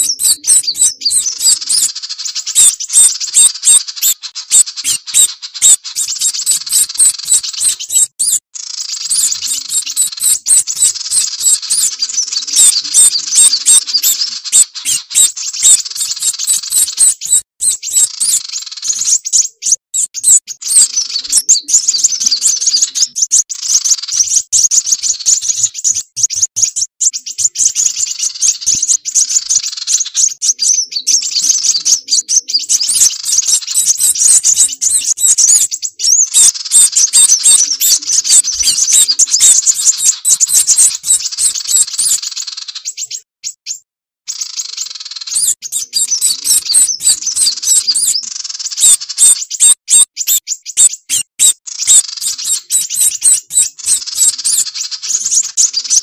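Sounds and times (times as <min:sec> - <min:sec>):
high-pitched bird chirping: 0:00.0 - 0:56.0.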